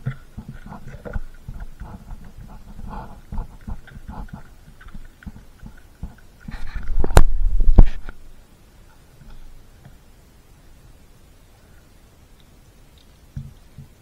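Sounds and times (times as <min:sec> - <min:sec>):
dog gnawing a bone: 0:00.0 - 0:08.1.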